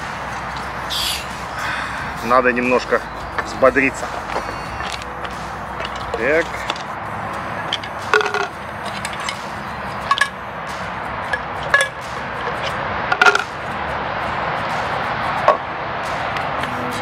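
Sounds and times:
camping stove parts clinking: 2.6s - 6.9s, 7.6s - 10.4s, 11.2s - 13.6s.

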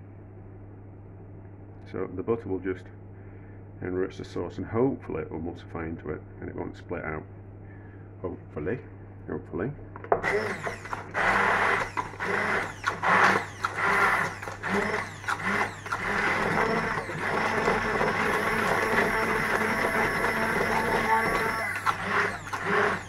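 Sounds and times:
electric blender whirring: 10.1s - 23.0s.

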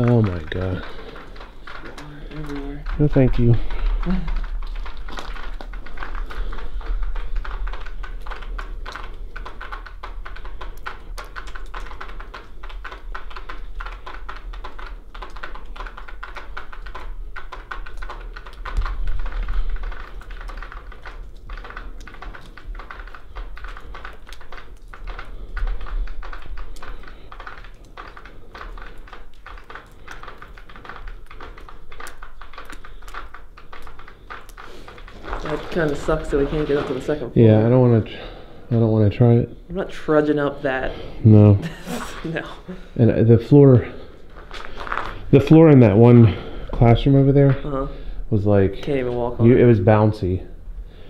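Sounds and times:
footsteps crunching on broken glass: 0.0s - 8.9s, 26.1s - 38.1s, 44.1s - 47.7s.

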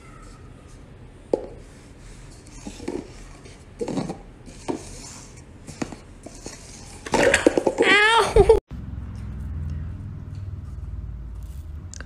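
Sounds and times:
paper cups scraping on floor: 1.6s - 8.0s.

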